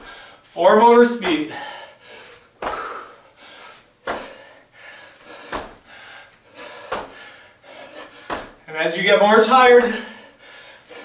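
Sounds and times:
hard breathing: 0.0s - 0.5s, 1.3s - 8.6s, 9.8s - 11.0s
feet thudding on hard floor: 1.1s - 1.6s, 2.6s - 3.0s, 4.0s - 4.5s, 5.3s - 6.0s, 6.7s - 7.3s, 8.2s - 8.7s.

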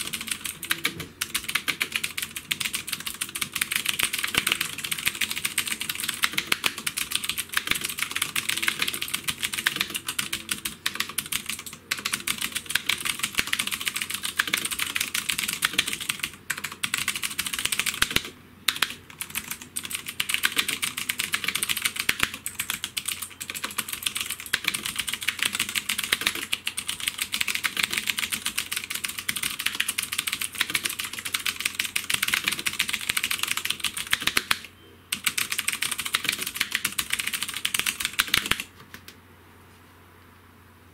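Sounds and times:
mechanical keyboard typing: 0.0s - 39.2s.

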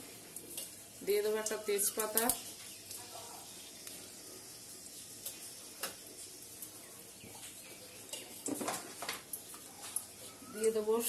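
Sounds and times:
spices sizzling and crackling in oil: 0.0s - 11.0s.

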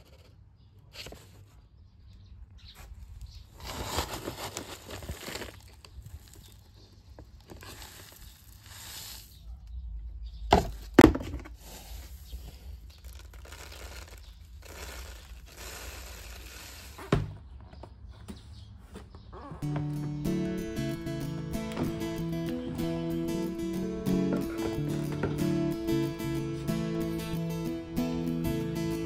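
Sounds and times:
plastic bag rustling: 3.4s - 9.4s, 12.2s - 17.1s.

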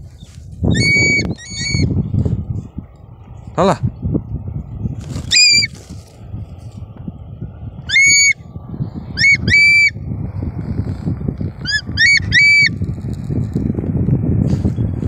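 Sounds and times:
hawk calling: 0.2s - 2.0s, 5.2s - 5.8s, 7.9s - 8.4s, 9.2s - 10.0s, 11.6s - 12.8s.

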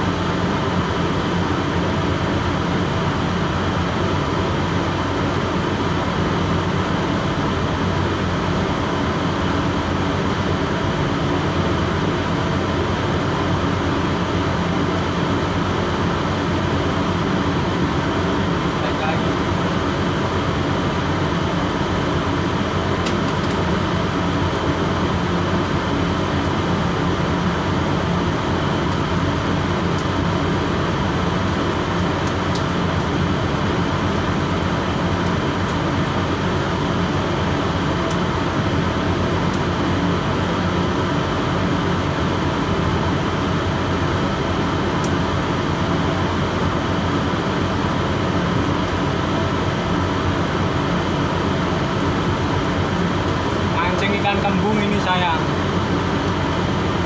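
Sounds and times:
boat machinery drone: 0.0s - 23.1s.

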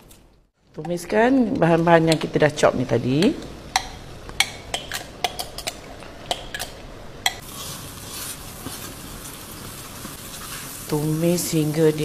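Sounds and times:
paste sizzling in oil: 7.4s - 12.0s.

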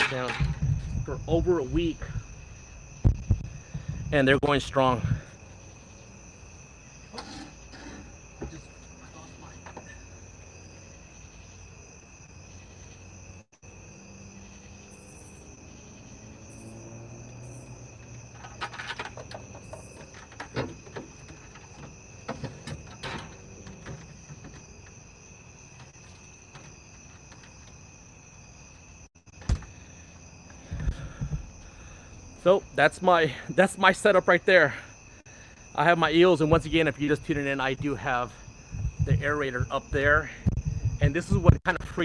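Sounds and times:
plastic bucket knocking and clattering: 0.0s - 1.0s, 18.4s - 24.9s.

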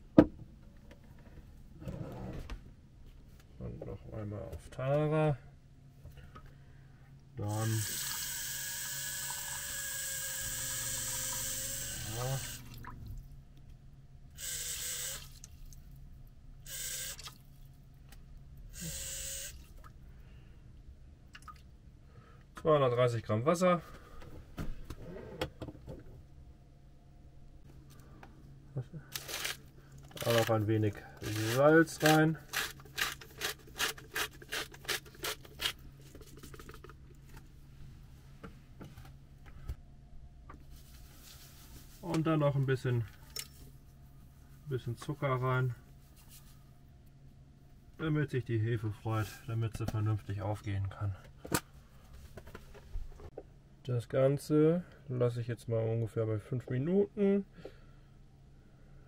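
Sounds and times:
salt mill grinding: 31.2s - 36.8s.

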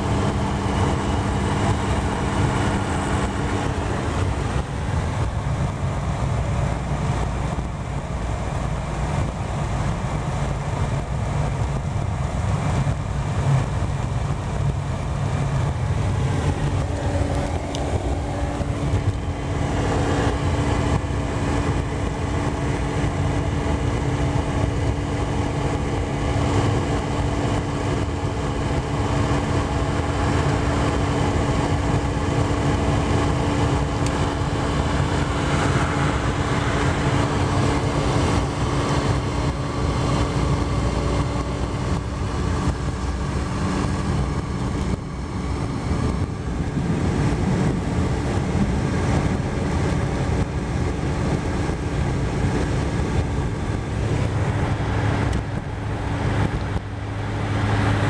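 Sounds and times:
constant low hum: 0.0s - 58.0s
road and engine noise in car: 0.0s - 58.0s.

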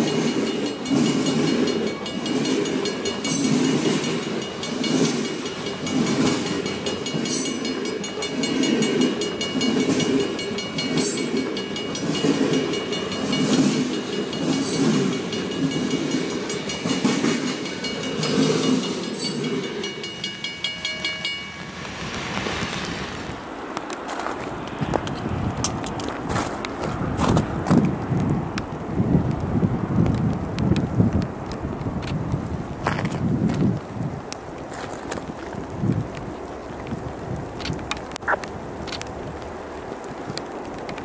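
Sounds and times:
train wheels clattering over rail joints: 0.0s - 22.7s, 23.8s - 27.9s
high steady squeal: 14.8s - 23.8s.

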